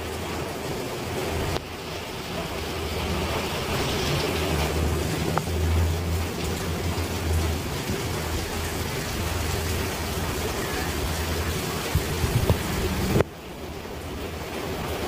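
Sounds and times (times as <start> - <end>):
steady rain falling: 0.0 - 15.0
low rumble: 2.5 - 13.2.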